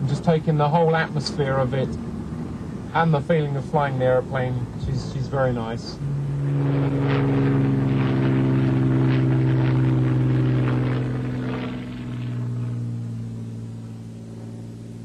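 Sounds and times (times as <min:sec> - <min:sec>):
propeller aircraft engine droning: 0:00.0 - 0:15.0.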